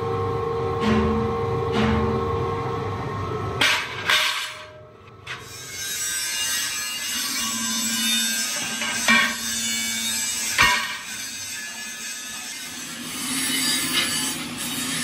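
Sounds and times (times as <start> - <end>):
workshop machinery humming: 0.0 - 15.0
sharp metal clanks: 10.4 - 11.3.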